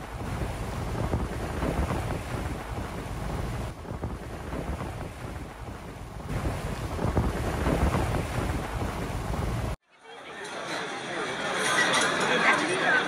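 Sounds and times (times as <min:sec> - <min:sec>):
wind buffeting microphone: 0:00.0 - 0:09.8
sea and boat noise: 0:00.0 - 0:13.0.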